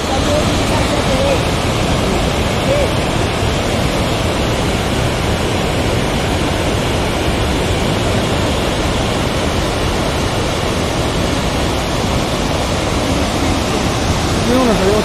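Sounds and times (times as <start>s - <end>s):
flood water rushing: 0.0s - 15.0s.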